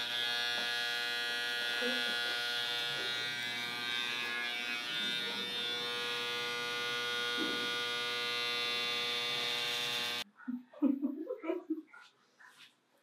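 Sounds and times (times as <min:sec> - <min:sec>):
electric hair clippers buzzing: 0:00.0 - 0:10.3.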